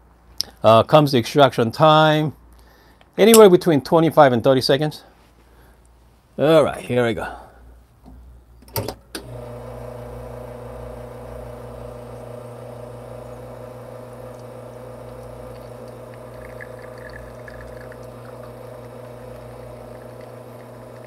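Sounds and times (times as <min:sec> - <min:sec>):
espresso machine pump humming: 0:09.2 - 0:21.0
espresso trickling: 0:09.4 - 0:21.0.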